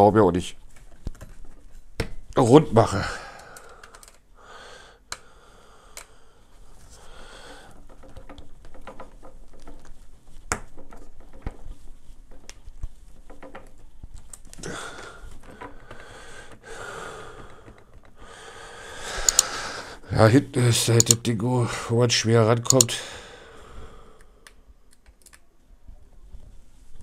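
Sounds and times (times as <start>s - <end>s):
person sniffing: 18.2s - 20.0s
clicks and scraping of stand parts: 19.2s - 19.6s.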